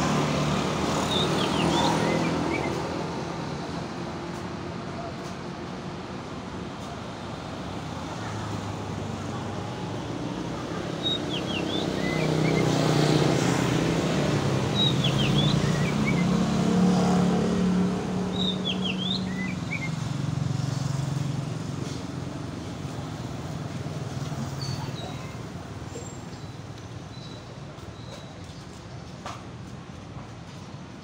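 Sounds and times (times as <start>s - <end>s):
songbird whistling: 1.1s - 2.8s, 11.0s - 12.8s, 14.7s - 16.4s, 18.3s - 20.0s
passing vehicle engine hum: 7.7s - 25.7s.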